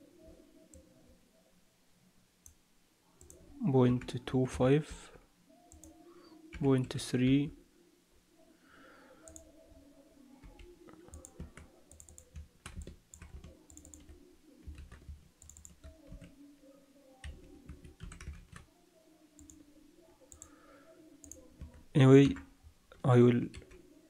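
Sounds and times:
computer mouse and keyboard clicks: 10.4s - 16.3s.

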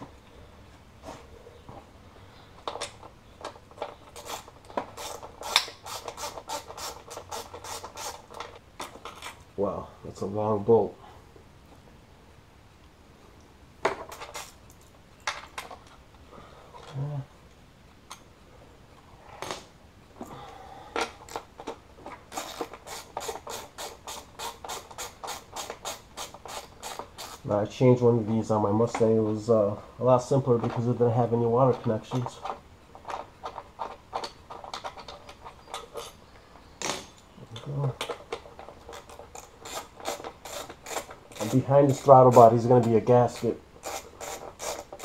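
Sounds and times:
hand ratchet clicking: 4.1s - 8.5s, 22.3s - 27.5s, 38.0s - 45.0s
ratchet wrench clicking: 22.4s - 27.4s, 43.3s - 45.0s.

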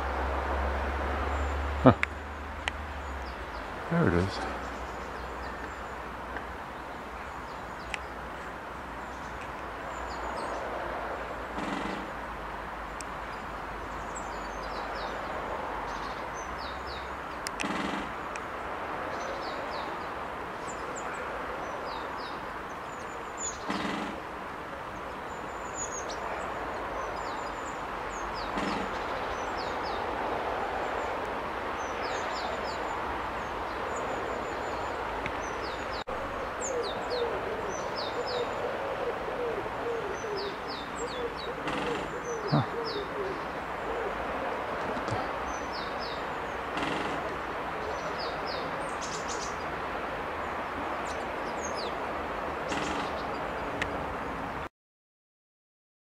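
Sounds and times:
steady outdoor noise: 0.0s - 54.7s
small birds chirping: 1.3s - 30.2s, 30.8s - 38.6s, 39.8s - 49.8s
woodpecker drumming on wood: 11.4s - 12.4s, 17.5s - 18.5s, 23.6s - 24.4s, 28.4s - 29.3s, 41.5s - 42.7s, 46.5s - 47.6s, 52.7s - 53.4s.

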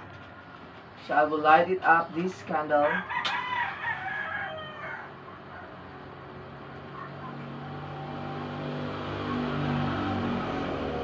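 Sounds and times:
rooster crowing: 2.8s - 5.9s.

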